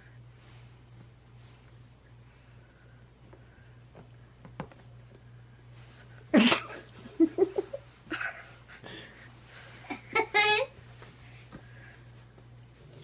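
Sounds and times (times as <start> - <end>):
child laughing and giggling: 9.9 - 10.8.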